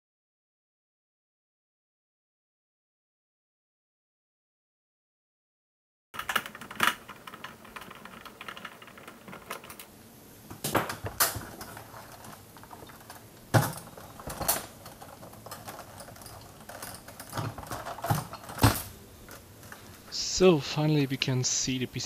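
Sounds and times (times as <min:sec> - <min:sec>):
plastic clicks and rattles: 0:06.2 - 0:20.0.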